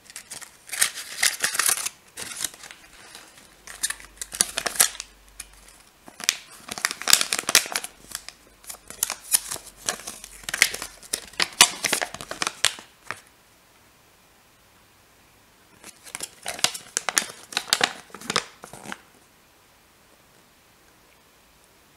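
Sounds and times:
paper leaflet crinkling: 0.0s - 13.3s, 15.8s - 19.0s.

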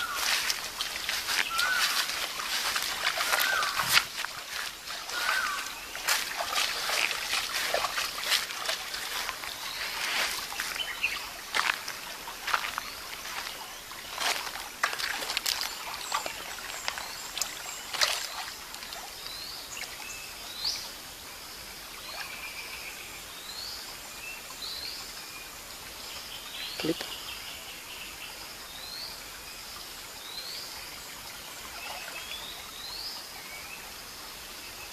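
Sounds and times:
water splashing and sloshing: 0.0s - 20.1s, 31.2s - 32.9s
birds chirping: 0.0s - 20.8s, 26.2s - 27.7s.

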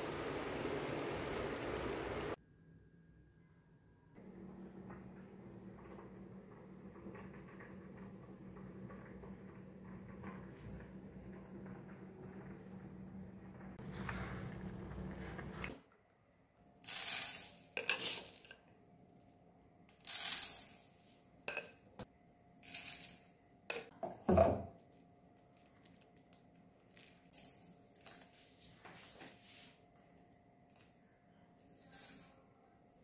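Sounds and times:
seeds rattling in metal pan: 16.8s - 18.6s, 20.0s - 21.7s.

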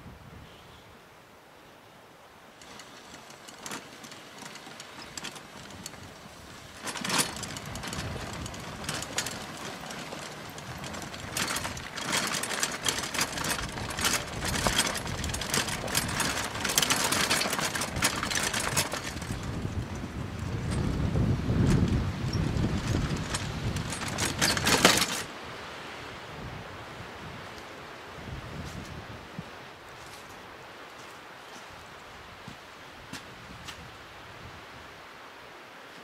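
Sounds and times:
cart wheels rolling over gravel: 2.6s - 25.3s.

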